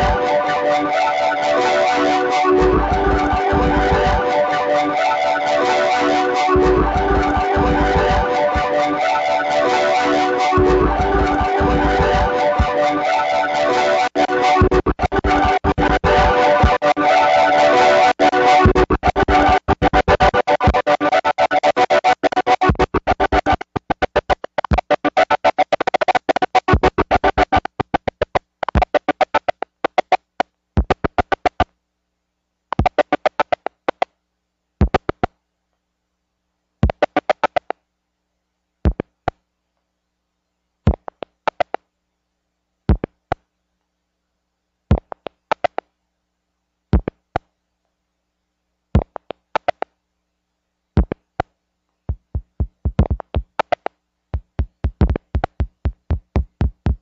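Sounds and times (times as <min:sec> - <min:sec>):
stuttering electronic music: 0:00.0 - 0:30.2, 0:32.8 - 0:33.6, 0:52.2 - 0:57.0.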